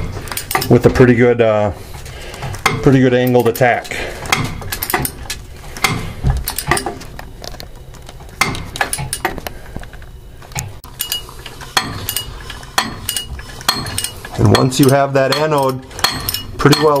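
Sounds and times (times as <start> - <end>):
ratchet clicks: 4.3 - 7.0, 10.5 - 17.0
metal-on-metal clinks: 4.6 - 5.3, 6.5 - 7.0, 10.9 - 17.0.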